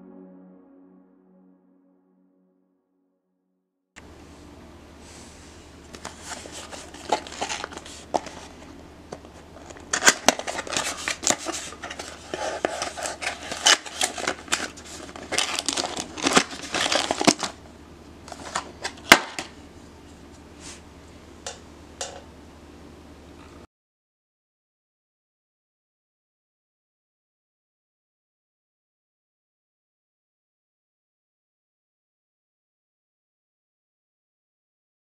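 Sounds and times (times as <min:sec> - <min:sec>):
cardboard box being opened: 0:10.0 - 0:17.6.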